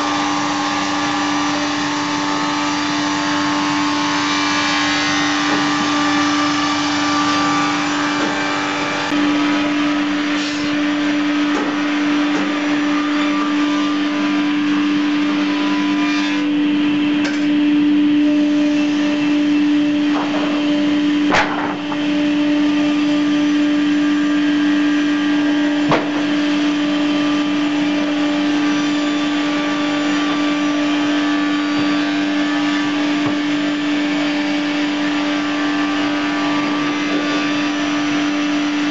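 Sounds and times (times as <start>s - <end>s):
loud steady machine hum: 0.0s - 38.9s
sharp knocks: 20.1s - 20.7s, 21.3s - 22.1s, 25.9s - 26.4s.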